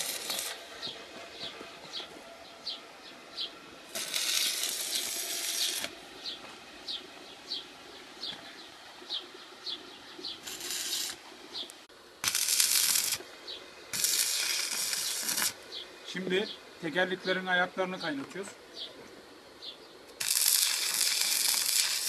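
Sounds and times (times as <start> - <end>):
arc welding crackling and hissing: 0.0 - 1.4, 3.9 - 6.4, 10.4 - 11.2, 12.2 - 15.8, 20.1 - 22.0
bird chirping: 0.7 - 3.7, 4.9 - 11.8, 18.0 - 19.0.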